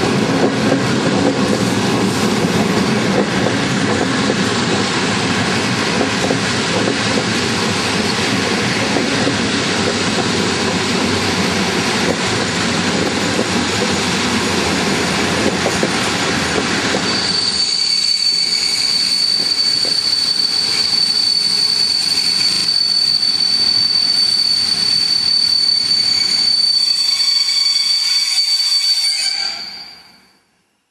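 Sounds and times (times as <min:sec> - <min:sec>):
train wheels clattering: 0:00.0 - 0:27.6
train wheels squealing: 0:06.0 - 0:14.2, 0:16.8 - 0:30.5.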